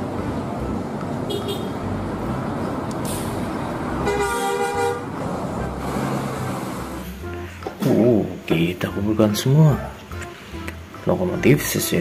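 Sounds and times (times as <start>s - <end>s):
road traffic noise: 0.0s - 12.0s
bus horn blast: 1.3s - 1.8s, 4.0s - 5.2s.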